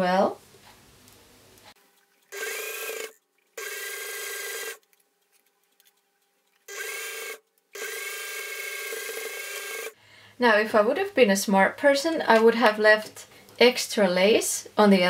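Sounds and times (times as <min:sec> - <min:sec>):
electric sewing machine stitching: 0:02.3 - 0:04.8, 0:06.7 - 0:10.0.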